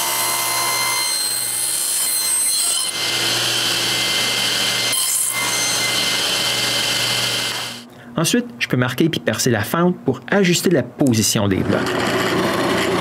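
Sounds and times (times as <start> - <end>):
table saw cutting wood: 0.0 - 7.8, 11.6 - 13.0.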